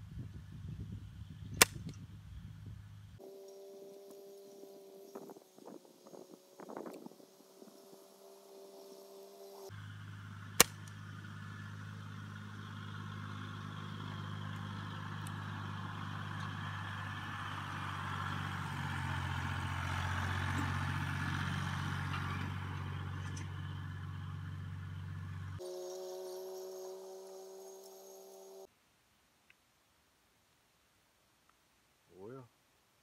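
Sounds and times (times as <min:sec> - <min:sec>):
tractor engine running: 0:01.5 - 0:28.7
sharp click: 0:10.6 - 0:11.0.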